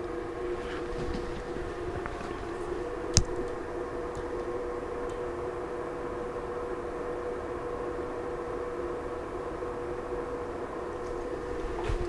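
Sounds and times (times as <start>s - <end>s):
electrical hum: 0.0s - 12.0s
sharp click: 3.2s - 3.6s.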